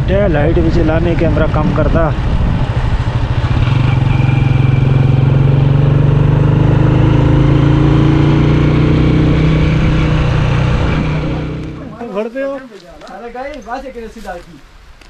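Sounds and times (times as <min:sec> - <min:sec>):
motorcycle engine running: 0:00.9 - 0:12.0.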